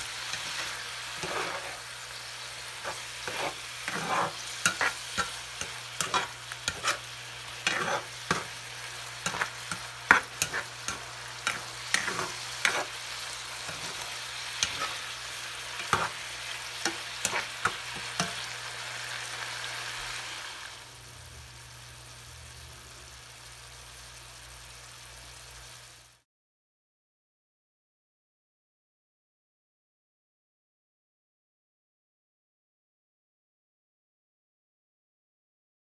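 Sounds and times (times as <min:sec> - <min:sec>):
sauce sizzling: 0:00.0 - 0:26.2
plastic spoon scraping a skillet: 0:00.2 - 0:01.9, 0:02.7 - 0:15.1, 0:15.8 - 0:16.2, 0:16.8 - 0:18.4.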